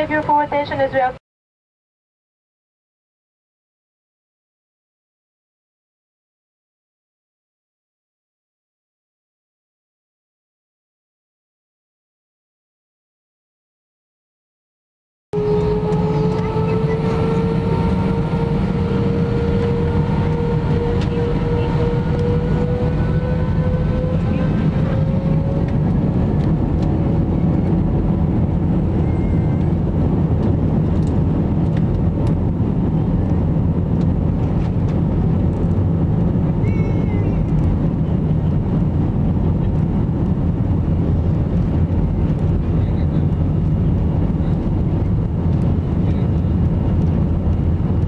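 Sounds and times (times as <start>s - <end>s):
jet engines rumbling and whining: 0.0s - 1.2s, 15.4s - 48.0s.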